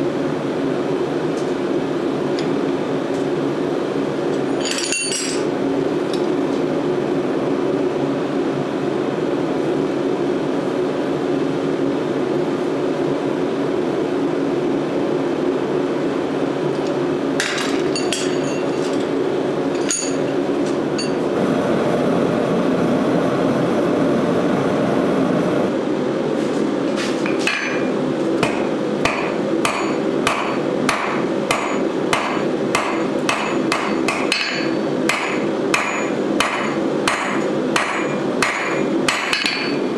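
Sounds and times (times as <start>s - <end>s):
forge roaring: 21.2s - 25.9s
hammer striking steel on anvil: 27.3s - 39.8s.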